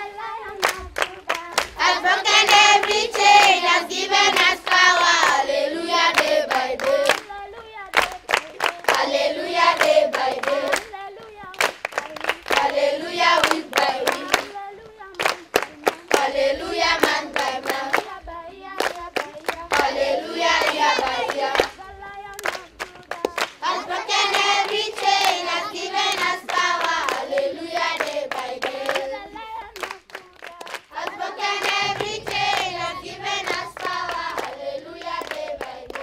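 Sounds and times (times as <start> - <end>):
group singing in chorus: 0.0 - 11.4, 12.0 - 36.0
rhythmic hand clapping: 0.0 - 36.0.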